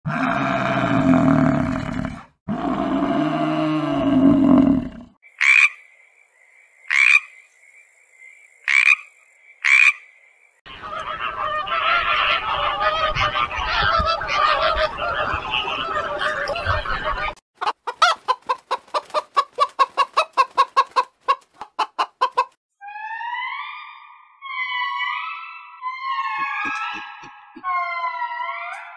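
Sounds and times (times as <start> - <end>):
frog calling: 5.2 - 10.5
flamingos honking: 10.7 - 17.4.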